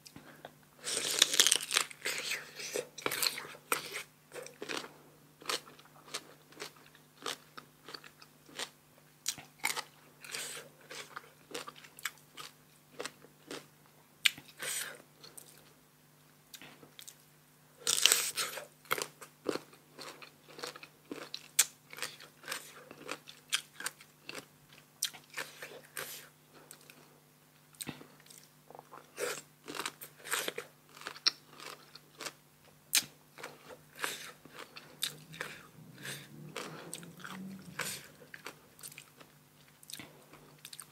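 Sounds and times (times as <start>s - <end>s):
crunchy chewing: 0.8s - 15.7s, 17.8s - 27.1s, 27.8s - 40.9s.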